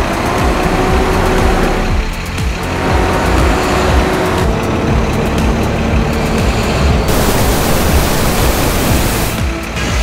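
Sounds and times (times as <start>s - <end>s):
dumper engine rumbling: 0.0s - 9.4s
rain hissing: 7.1s - 9.4s.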